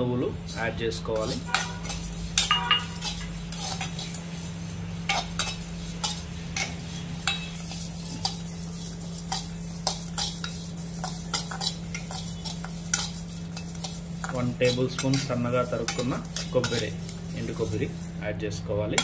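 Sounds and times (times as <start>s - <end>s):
spatula scraping spices in metal pan: 0.0s - 19.0s
steady low hum: 0.0s - 19.0s
spatula clinking against pan: 1.5s - 3.8s, 9.3s - 16.9s.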